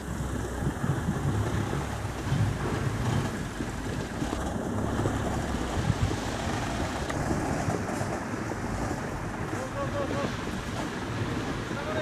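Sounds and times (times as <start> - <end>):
diesel truck engine rumbling: 0.0 - 10.1.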